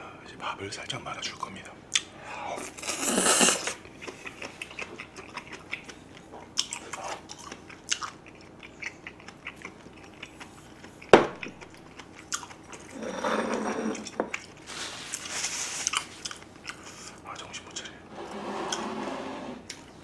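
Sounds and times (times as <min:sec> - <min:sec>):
person chewing: 0:01.9 - 0:17.5
paper tissue rustling: 0:14.7 - 0:16.2.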